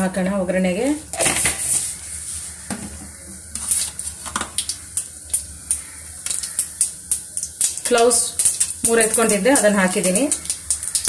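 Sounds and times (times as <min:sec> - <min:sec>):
seeds sizzling in hot oil: 0:00.8 - 0:11.0
seeds popping: 0:03.7 - 0:11.0.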